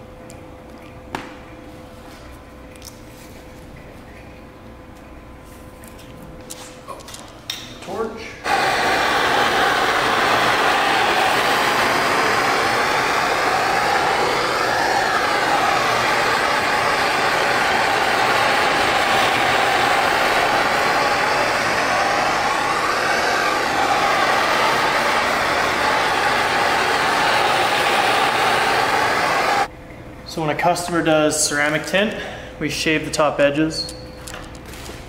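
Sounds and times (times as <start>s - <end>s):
torch flame hissing: 8.4s - 29.7s.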